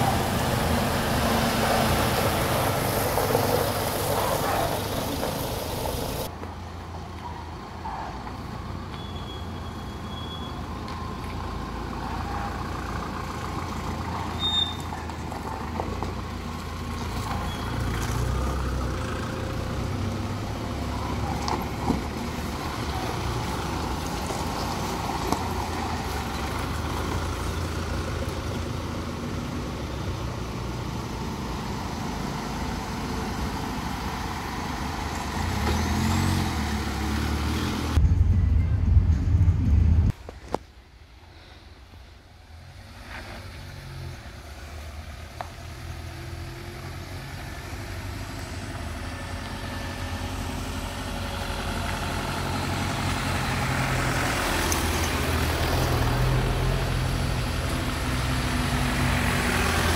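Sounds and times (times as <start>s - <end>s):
engine approaching: 0.0s - 6.3s, 10.8s - 40.6s, 42.4s - 59.9s
jeep engines running: 0.0s - 6.4s
low engine rumble: 37.9s - 42.8s.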